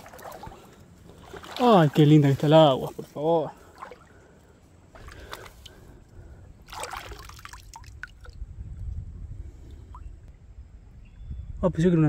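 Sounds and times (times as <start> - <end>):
water splashing: 0.0 - 6.0, 6.6 - 8.5.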